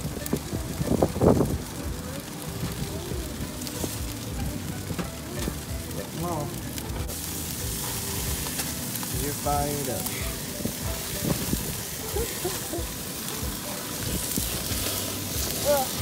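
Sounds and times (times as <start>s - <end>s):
burger patties sizzling on a grill: 0.0s - 16.0s.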